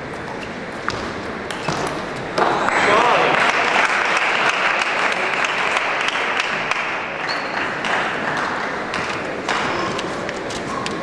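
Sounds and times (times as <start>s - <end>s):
audience applauding: 2.5s - 10.1s.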